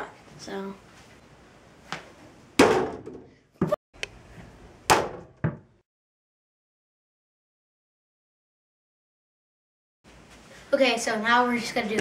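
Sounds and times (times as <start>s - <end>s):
ball bouncing: 4.9s - 5.7s.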